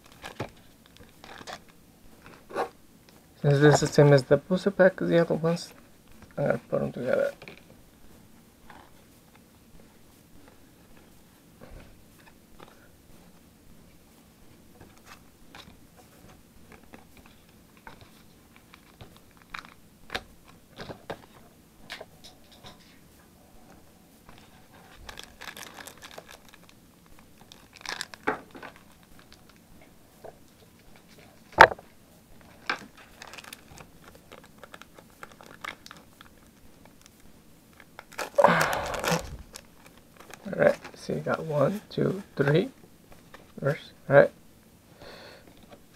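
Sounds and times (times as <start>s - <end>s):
foil wrapper crinkling and tearing: 24.4s - 29.6s, 32.4s - 41.0s.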